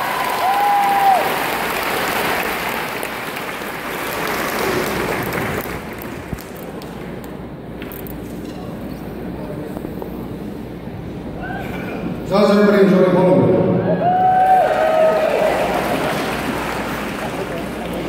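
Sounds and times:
audience applauding: 0.0 - 7.1, 14.1 - 18.0.

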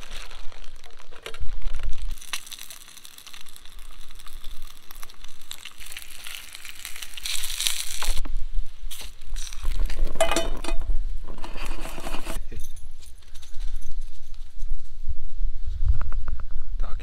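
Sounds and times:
plastic packaging crinkling: 0.0 - 8.2, 8.9 - 10.2.

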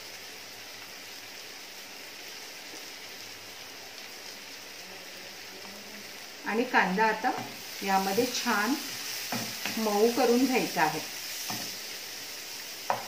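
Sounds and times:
butter and onion sizzling: 0.0 - 13.0.

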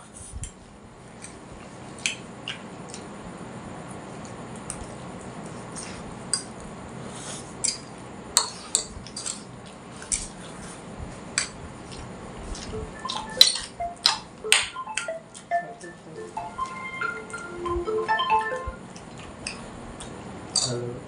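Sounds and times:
people eating noodles: 4.1 - 14.2
steady low hiss: 12.1 - 19.0.

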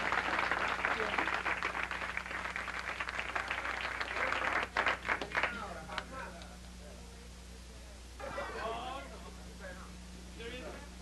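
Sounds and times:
audience applauding: 0.0 - 5.6
low electrical hum: 0.0 - 11.0.

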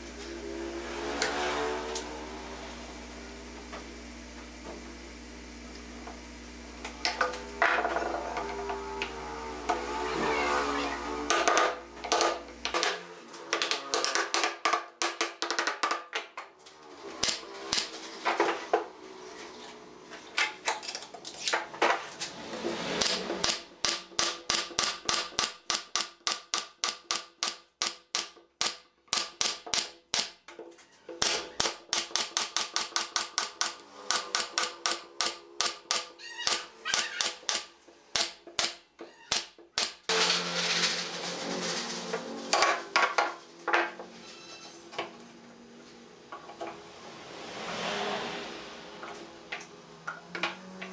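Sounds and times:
nail gun firing: 23.0 - 30.4, 31.2 - 40.1.

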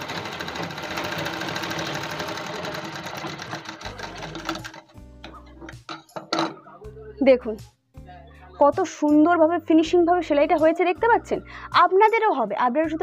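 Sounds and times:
sewing machine stitching: 0.0 - 4.9.

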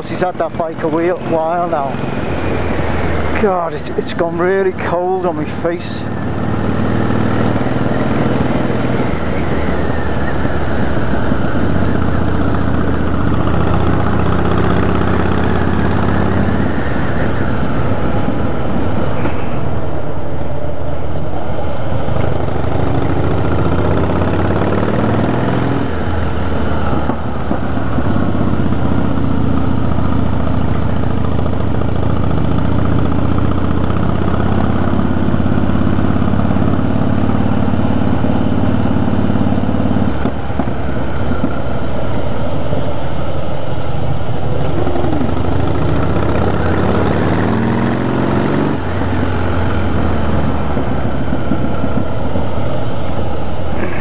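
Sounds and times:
motorcycle engine running: 4.4 - 20.7, 21.6 - 54.0
wind noise: 6.1 - 14.2, 15.5 - 23.6, 39.2 - 54.0.

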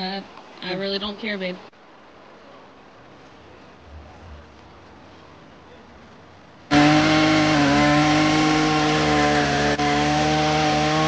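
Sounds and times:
chainsaw cutting log: 6.7 - 11.0.

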